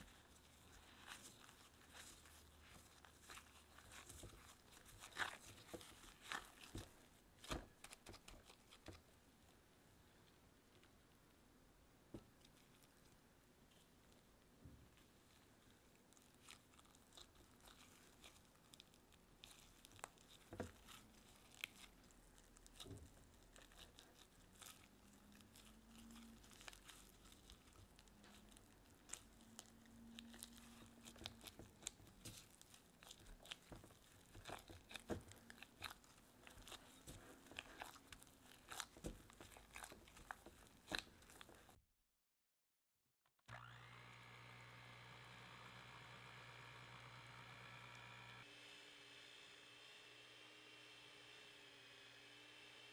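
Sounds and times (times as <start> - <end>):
dough squelching while kneaded: 0.0 - 41.8.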